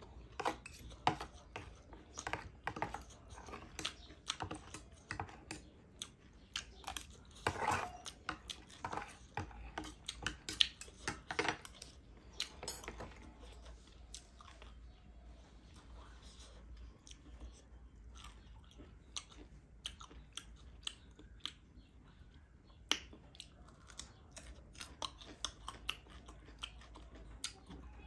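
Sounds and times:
cutlery scraping a plate: 0:00.4 - 0:05.7, 0:06.8 - 0:13.6.

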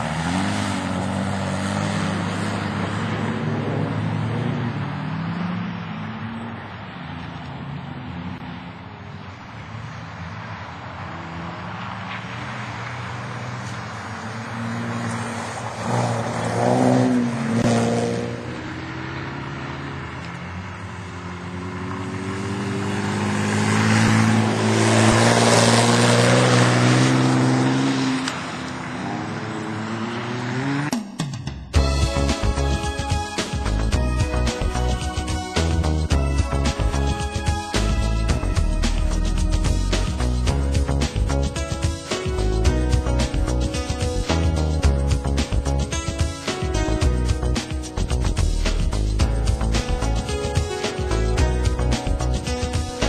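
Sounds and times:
race car engines: 0:00.0 - 0:31.0, 0:31.7 - 0:53.0
race car passing close: 0:00.0 - 0:31.0.

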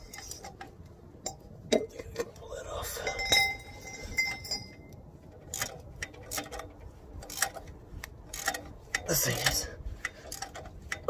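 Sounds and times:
ringing metallic clink: 0:02.9 - 0:05.0.

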